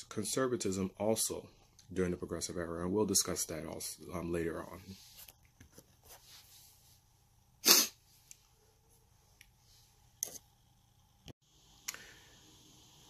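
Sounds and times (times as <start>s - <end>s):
man sneezing: 7.6s - 8.0s
faint short breath: 11.9s - 12.5s.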